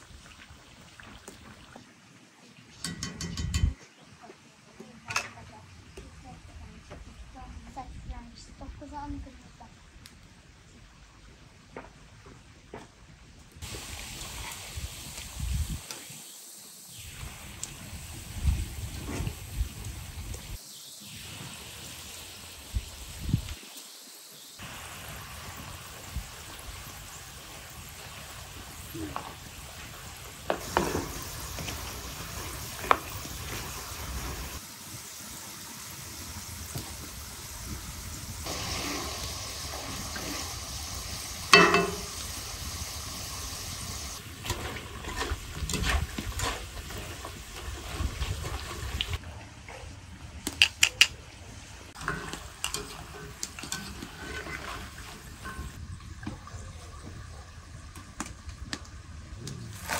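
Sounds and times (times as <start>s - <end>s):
utensil clinking against pan: 2.8s - 3.8s, 41.5s - 42.2s
food sizzling in hot oil: 13.6s - 49.2s, 51.9s - 55.8s.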